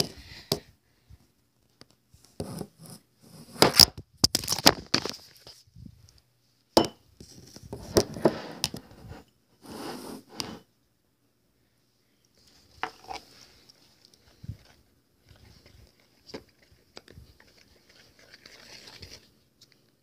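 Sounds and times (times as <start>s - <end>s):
crinkling and scraping materials: 12.4s - 20.0s.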